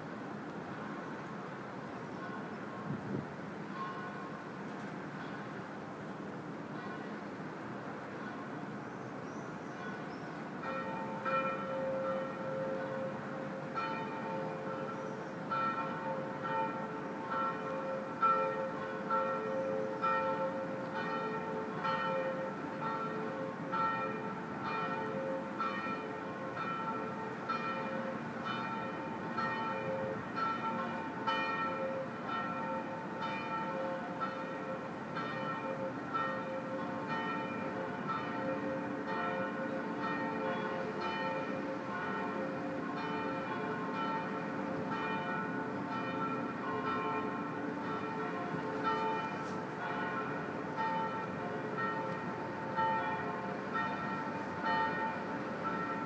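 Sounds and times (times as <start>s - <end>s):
church bells ringing: 2.2s - 2.9s, 3.6s - 5.8s, 6.6s - 8.8s, 9.8s - 56.0s.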